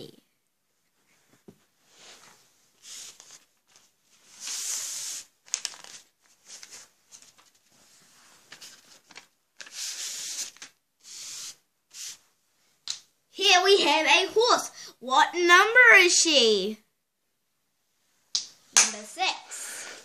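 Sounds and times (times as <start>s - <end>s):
rustling and rubbing: 0.7s - 12.3s.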